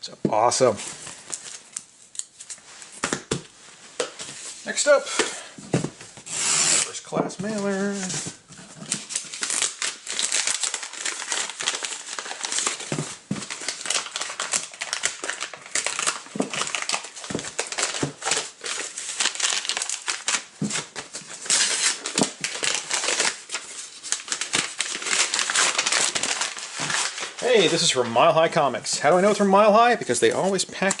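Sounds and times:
paper crinkling and rustling: 7.4 - 31.0
envelope tearing: 8.7 - 27.9.

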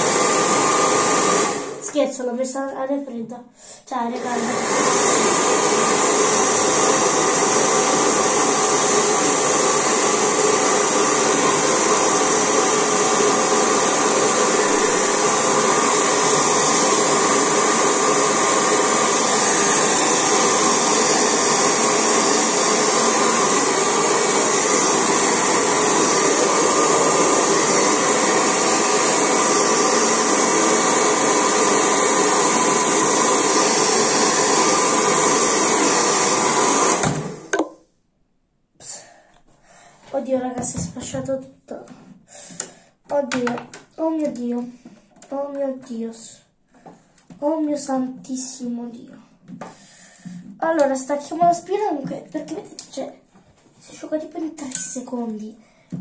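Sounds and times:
hair dryer blowing: 0.0 - 2.0, 4.0 - 37.7.

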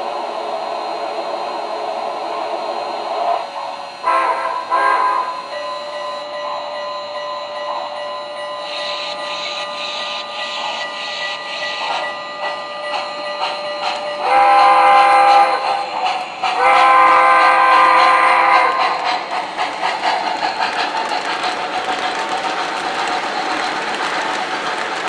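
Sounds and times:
multi-tone steam whistle: 0.0 - 19.3
rhythmic steam chuffing: 0.0 - 25.0.

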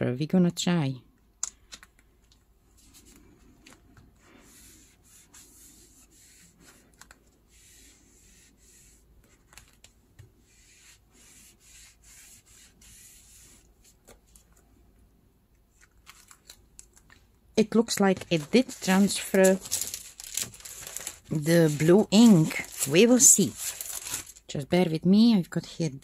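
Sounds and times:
soft rubbing swishes on plastic: 2.7 - 14.5.

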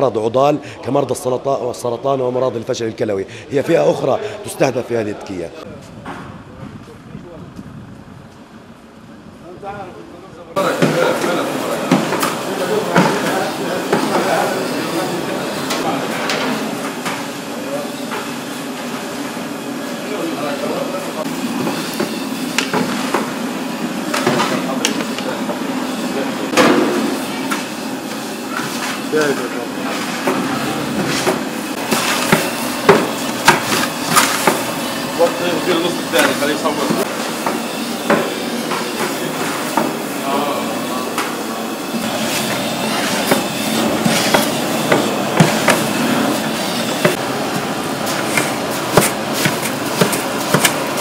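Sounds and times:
steady kitchen din: 10.5 - 51.0
utensils clanking on steel pots: 10.6 - 19.2, 24.0 - 40.2, 42.0 - 51.0.

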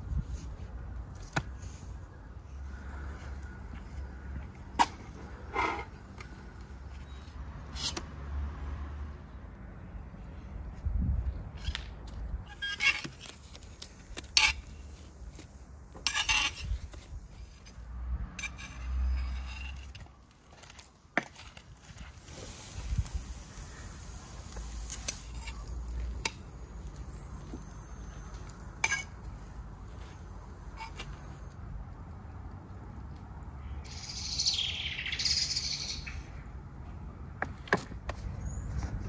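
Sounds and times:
metal skewers and knife clinking: 28.8 - 29.2.

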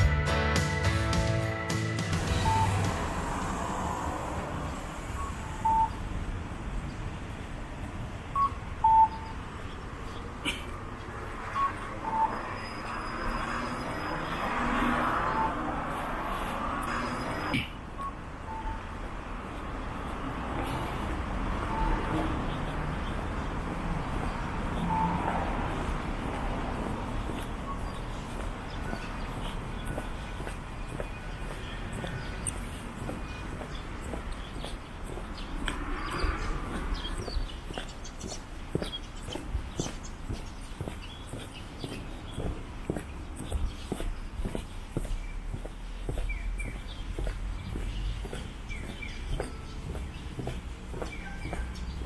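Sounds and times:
street rumble: 0.0 - 52.0
two-tone electronic beeps: 2.3 - 2.9, 5.1 - 6.0, 8.3 - 9.4, 11.5 - 14.4, 15.3 - 15.7, 16.8 - 19.0, 21.7 - 22.3, 24.8 - 25.3.

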